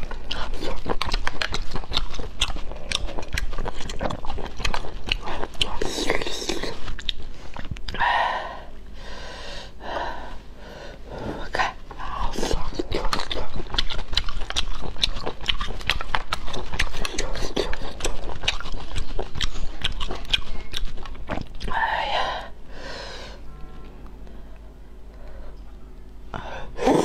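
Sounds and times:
wet smacking and chewing: 0.0s - 8.0s, 11.9s - 21.8s.

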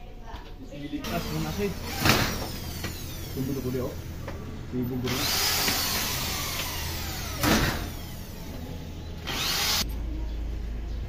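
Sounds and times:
power drill drilling into wood: 1.1s - 3.8s, 5.1s - 8.5s, 9.3s - 9.8s.

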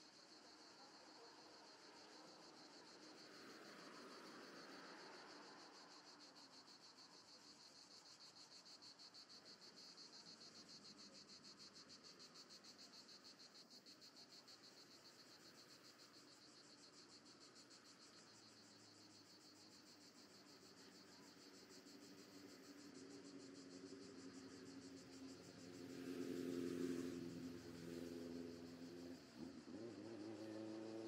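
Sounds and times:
cicadas buzzing: 12.4s - 31.0s.

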